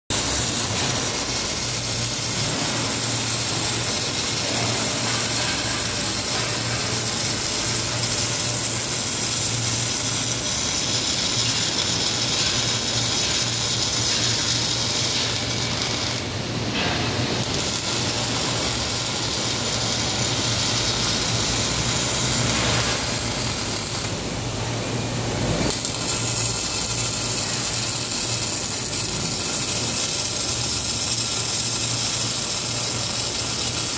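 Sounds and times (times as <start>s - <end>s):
welding arc crackling: 0.1s - 33.9s.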